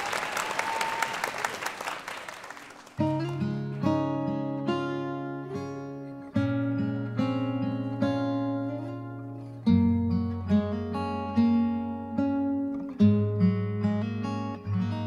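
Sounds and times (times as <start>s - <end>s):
guitar chords strummed: 3.0s - 15.0s.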